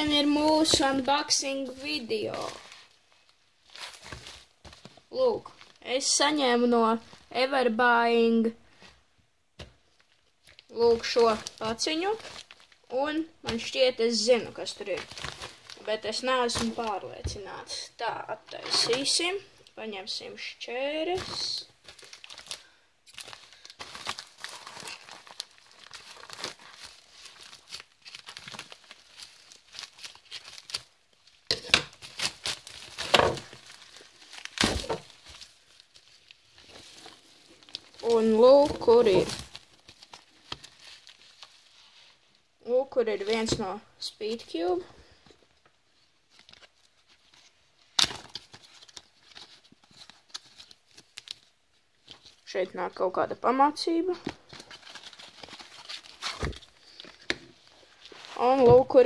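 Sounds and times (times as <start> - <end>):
plastic bag crinkling: 10.0 - 12.9, 21.8 - 41.8, 54.4 - 59.0.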